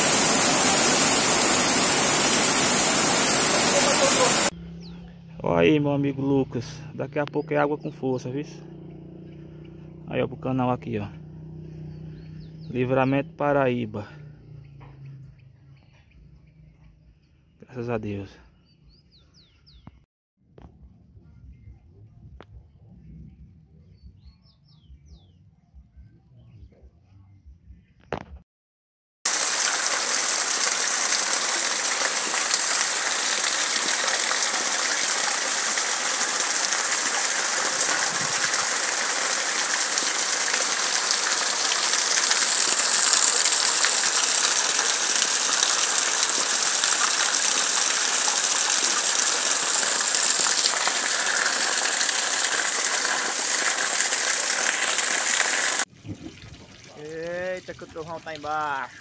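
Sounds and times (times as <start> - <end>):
heavy rain falling: 0.0 - 4.5, 29.3 - 55.8
water gushing from drainpipe: 0.0 - 4.6, 29.3 - 59.0.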